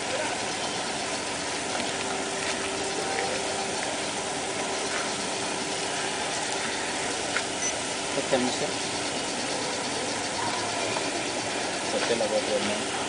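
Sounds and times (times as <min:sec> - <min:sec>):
faint low engine-like hum: 0:00.0 - 0:13.0.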